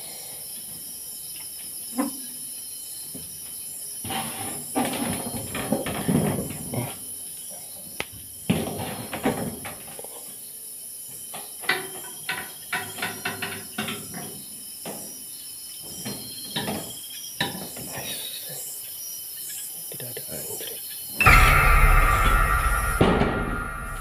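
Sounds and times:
crickets and insects chirring: 0.0 - 24.0
sharp knocks and thumps: 21.2 - 24.0.

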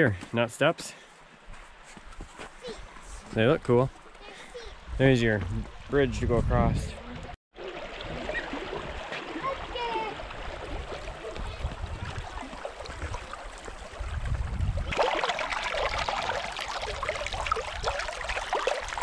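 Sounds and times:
river water splashing over rocks: 7.6 - 14.1, 14.9 - 19.0.

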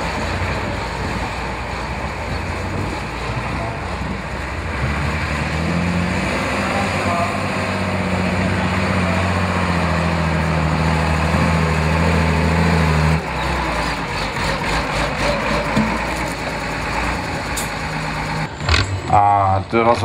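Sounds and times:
truck engine under load: 0.0 - 20.0.

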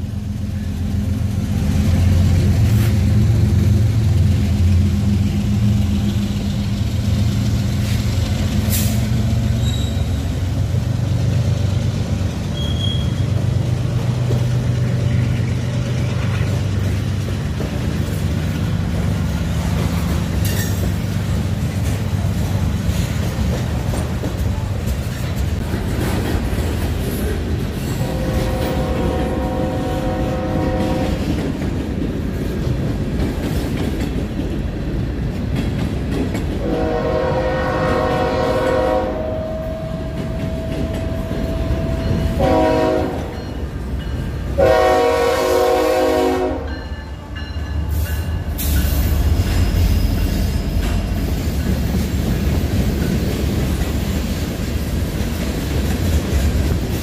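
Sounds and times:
diesel locomotive engine drone: 0.0 - 57.0
wheel squeals: 9.5 - 10.4, 12.5 - 13.5
train horn: 28.0 - 31.4, 36.6 - 43.6, 44.5 - 47.4.

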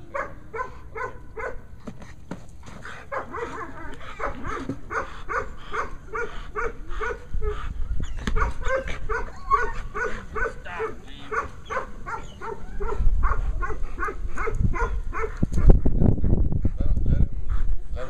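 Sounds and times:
dog barking rapidly: 0.2 - 1.7, 3.1 - 7.6, 8.2 - 15.8.

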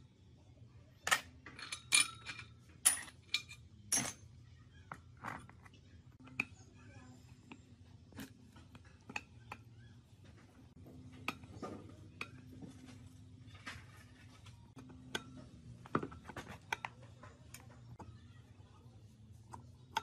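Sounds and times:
metal tools clinking and knocking: 1.0 - 4.3.

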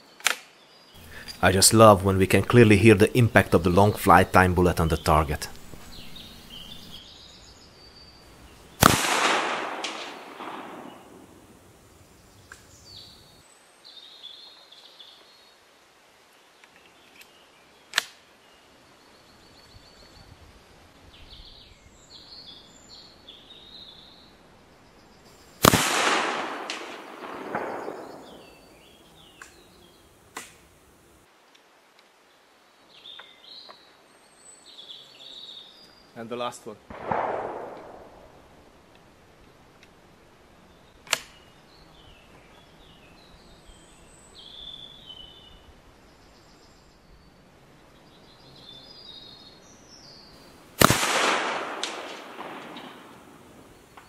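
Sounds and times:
rifle shots echoing: 8.8 - 11.6, 25.6 - 28.9, 36.9 - 38.6, 50.8 - 53.9
sharp click: 41.0 - 41.4.

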